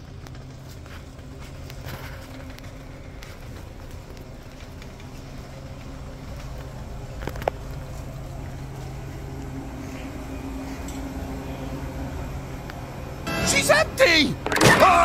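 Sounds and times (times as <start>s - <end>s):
cart rolling over carpet: 0.0s - 10.4s.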